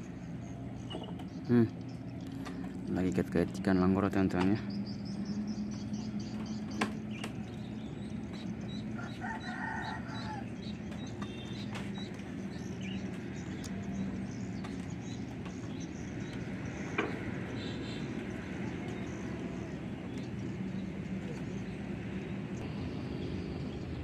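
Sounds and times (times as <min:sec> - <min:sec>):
steady low hum: 0:00.0 - 0:24.0
rooster crowing: 0:09.0 - 0:10.5.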